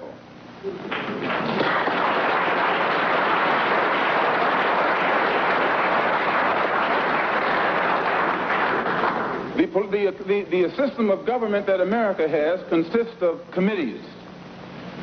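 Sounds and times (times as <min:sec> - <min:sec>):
large audience applauding: 0:00.8 - 0:09.6.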